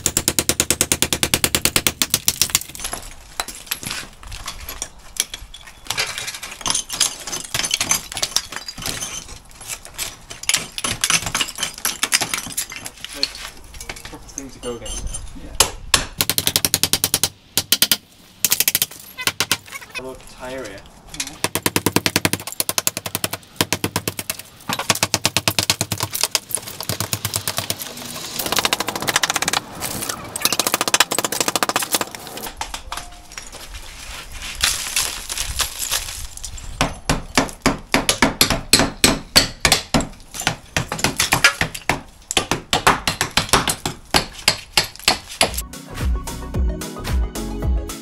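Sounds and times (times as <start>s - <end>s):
bricks and rubble falling loose: 2.2s - 14.2s, 34.6s - 37.4s.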